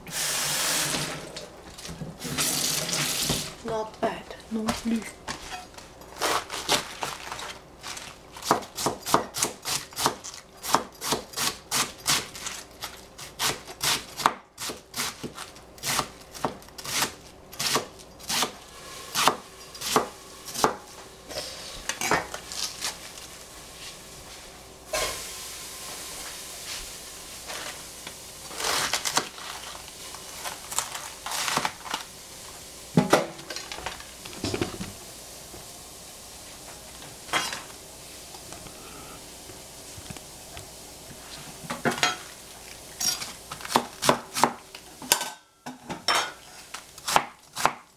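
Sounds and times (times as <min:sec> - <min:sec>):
steady sizzle: 0:00.0 - 0:05.0, 0:07.4 - 0:47.9
knife chopping on cutting board: 0:08.4 - 0:12.2, 0:19.2 - 0:20.8, 0:43.6 - 0:44.6, 0:47.0 - 0:47.9
utensils and pots clattering: 0:33.0 - 0:35.0, 0:41.6 - 0:42.3, 0:42.9 - 0:43.4, 0:45.0 - 0:46.7.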